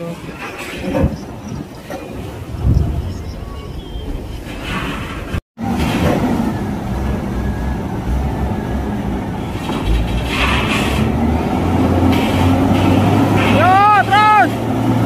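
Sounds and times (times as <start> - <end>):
diesel truck engine under load: 3.8 - 15.0.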